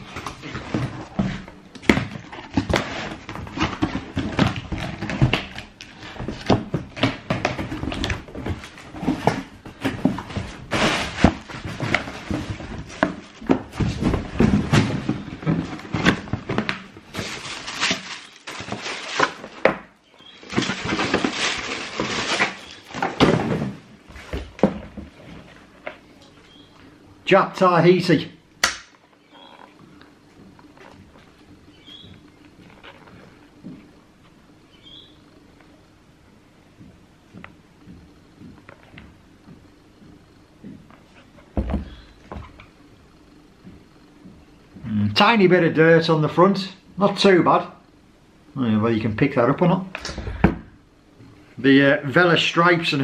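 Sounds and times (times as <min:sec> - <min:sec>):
cardboard box rustling and crackling: 0:00.0 - 0:25.5.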